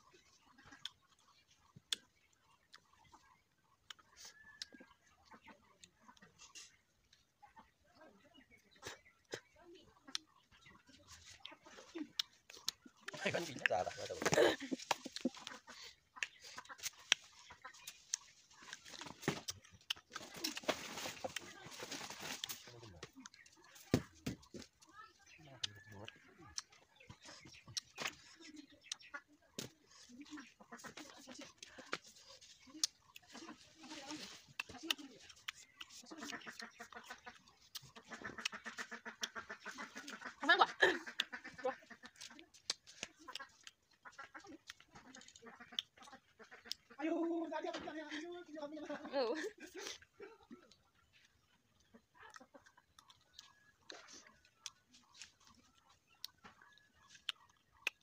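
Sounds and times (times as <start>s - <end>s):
chewing crisp fruit: 0.0s - 47.2s, 48.8s - 58.0s
chicken clucking: 0.0s - 58.0s
duck quacking: 36.0s - 42.4s, 43.2s - 47.1s.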